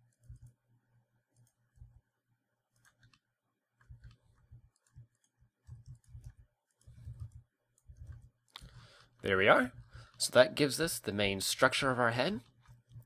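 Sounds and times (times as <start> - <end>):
computer mouse and keyboard clicks: 0.0 - 0.6, 1.3 - 2.0, 2.7 - 8.8, 12.4 - 13.0
soft low thumps: 3.8 - 8.3.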